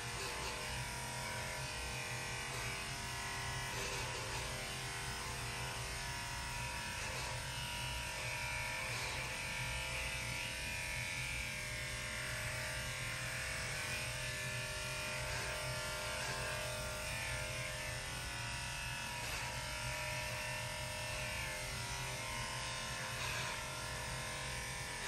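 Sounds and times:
electric clippers humming: 0.0 - 25.0.

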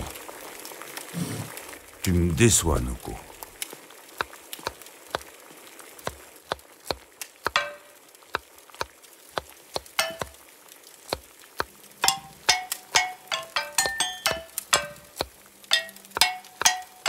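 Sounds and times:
spoons tapping clay bowls: 7.5 - 7.9, 8.8 - 10.4, 12.0 - 17.0.

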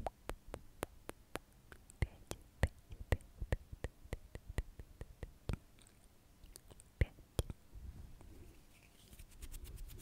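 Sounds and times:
hands rustling near microphone: 7.9 - 10.0.

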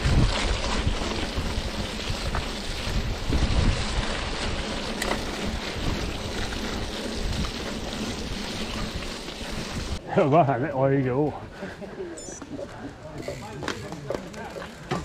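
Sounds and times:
wind buffeting microphone: 0.0 - 10.0
bike tyres running through mud: 0.0 - 10.1, 12.7 - 15.0.

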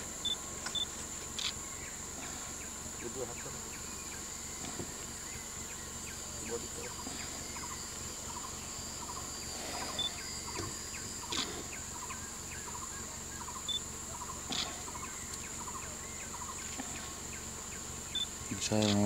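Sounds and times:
high-pitched insect drone: 0.0 - 19.0
sharp clicks: 0.6 - 1.6.

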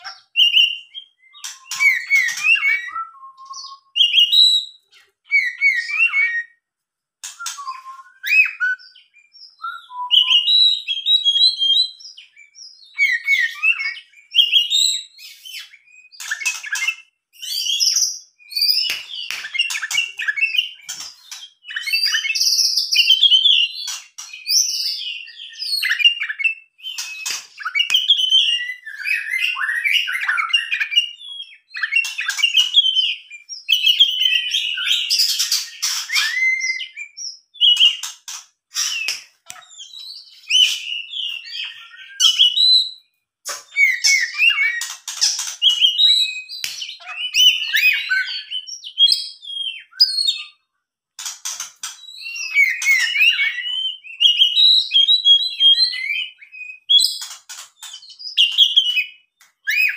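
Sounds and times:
bird singing whistled phrases: 0.0 - 6.6, 7.2 - 38.1, 38.8 - 45.0, 45.6 - 50.6, 52.0 - 59.9.

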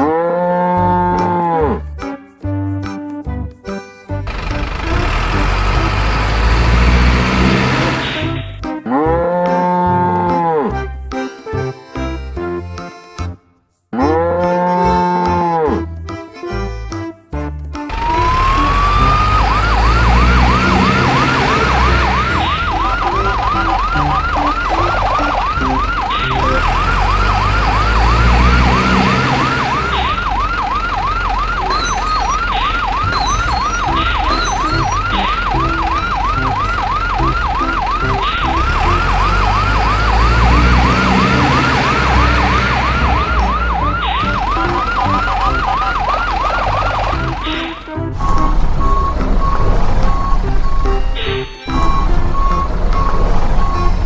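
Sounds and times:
background music: 0.0 - 54.0
electronic yelp siren: 17.9 - 54.0.

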